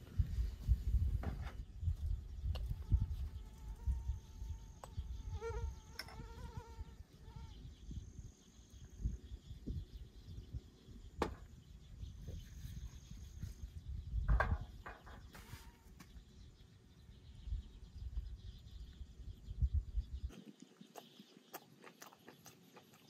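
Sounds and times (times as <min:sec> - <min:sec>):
fly buzzing: 0:02.8 - 0:07.6.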